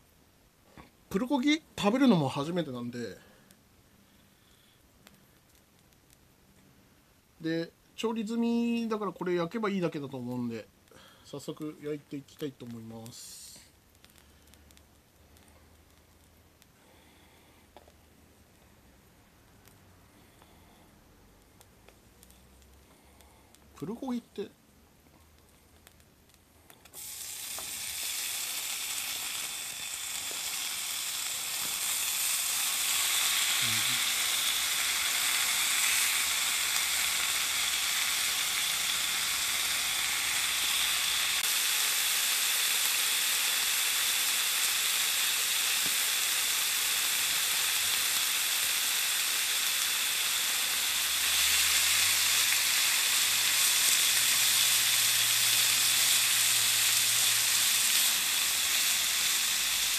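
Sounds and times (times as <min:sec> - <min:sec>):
meat sizzling on a hot plate: 0:11.2 - 0:16.6, 0:19.0 - 0:22.8, 0:23.7 - 0:24.4, 0:26.9 - 0:59.9.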